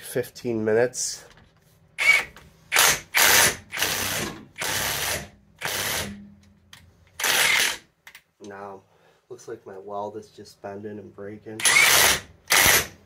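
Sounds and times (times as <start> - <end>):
impact wrench hammering: 2.0 - 6.5, 7.2 - 7.8.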